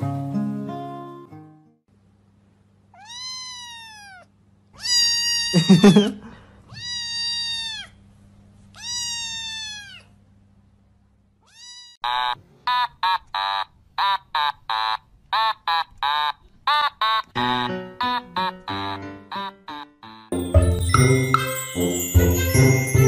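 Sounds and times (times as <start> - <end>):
kitten meowing: 3.0 - 8.0, 8.7 - 10.1, 11.5 - 12.0
music of quick even notes: 20.3 - 23.0.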